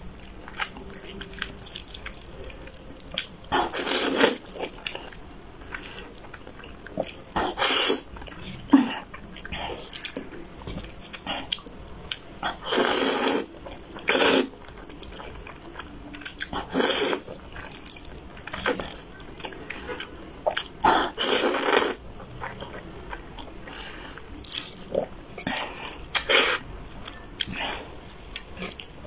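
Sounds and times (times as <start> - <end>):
wet chewing: 0.1 - 29.0
person slurping noodles: 3.6 - 4.5, 7.0 - 8.1, 12.6 - 13.5, 14.1 - 14.5, 16.6 - 17.7, 20.9 - 22.0.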